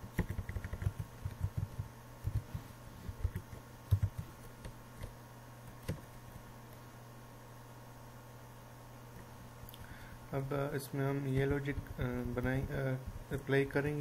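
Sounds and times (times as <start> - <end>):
steady low hum: 0.0 - 14.0
typing on computer keyboard: 0.1 - 2.5, 3.2 - 4.8, 5.7 - 6.2.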